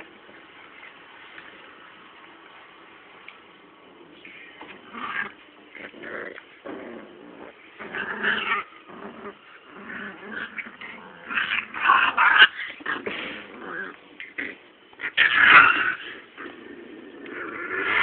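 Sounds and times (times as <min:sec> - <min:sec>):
puppies growling and whining: 0:04.2 - 0:18.0.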